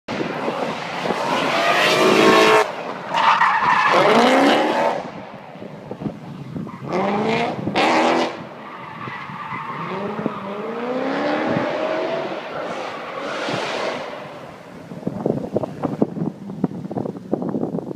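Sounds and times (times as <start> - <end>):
tyres squealing on asphalt: 0.9 - 5.0, 8.3 - 15.8
car engine revving hard: 9.8 - 14.4.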